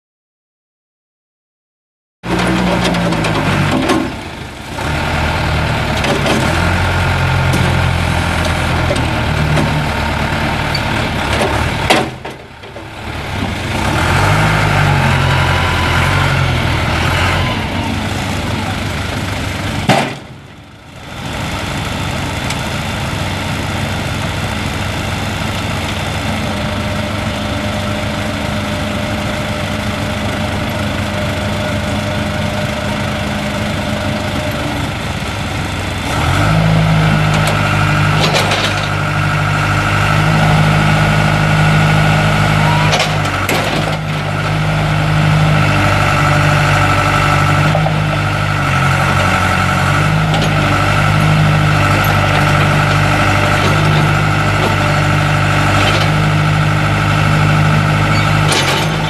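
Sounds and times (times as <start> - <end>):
diesel engine labouring: 2.2 - 59.0.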